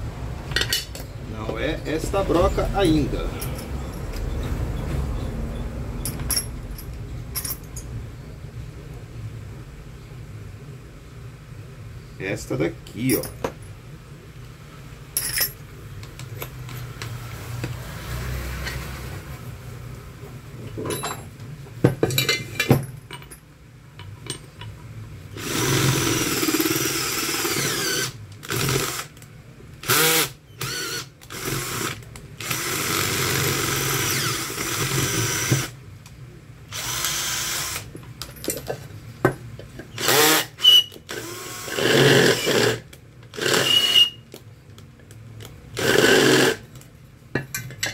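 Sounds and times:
cordless drill boring into metal: 25.4 - 29.1, 29.8 - 35.7, 36.7 - 37.9, 40.0 - 42.8, 43.4 - 44.2, 45.8 - 46.6.

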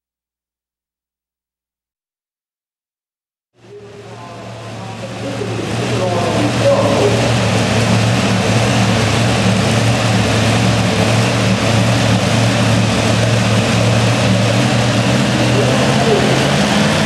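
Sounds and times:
tractor engine idling: 3.6 - 17.0.

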